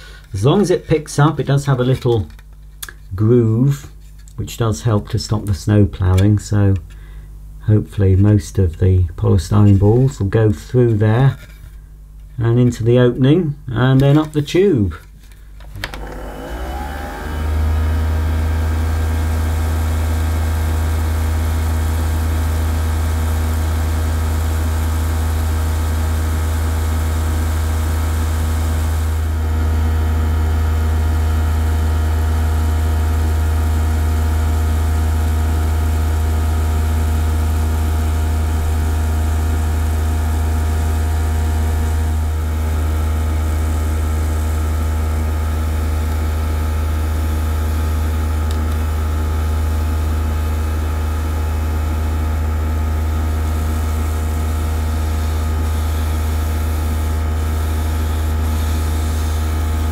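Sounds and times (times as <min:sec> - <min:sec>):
toy vacuum cleaner motor whining: 0:15.9 - 0:20.5, 0:41.4 - 0:42.4, 0:53.4 - 0:59.9.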